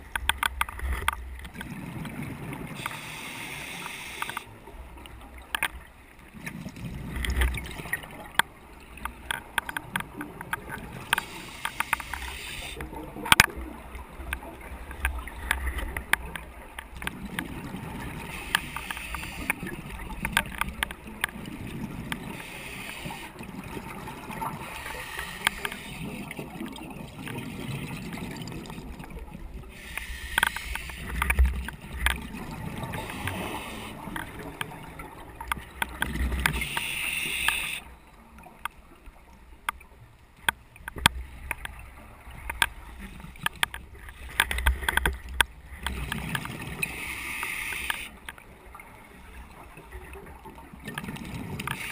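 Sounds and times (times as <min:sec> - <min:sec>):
exhaled bubbles rumbling: 0:00.0 - 0:02.9, 0:06.2 - 0:11.2, 0:12.8 - 0:18.5, 0:19.5 - 0:22.4, 0:23.3 - 0:29.9, 0:31.0 - 0:36.7
regulator hissing inhalations: 0:02.8 - 0:04.5, 0:11.2 - 0:12.8, 0:22.3 - 0:23.3, 0:29.7 - 0:31.2, 0:33.0 - 0:34.0, 0:36.5 - 0:37.8, 0:46.8 - 0:48.2.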